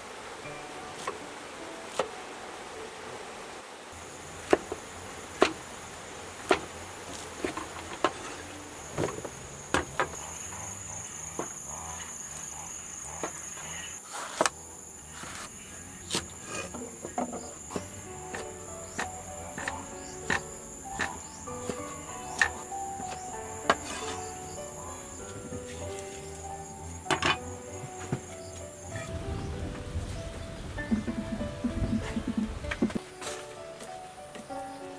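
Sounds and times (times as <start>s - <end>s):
high insect drone: 0.0s - 34.9s
cleaver chopping on wooden block: 4.4s - 4.8s, 5.4s - 5.6s, 6.4s - 8.2s, 16.1s - 24.1s.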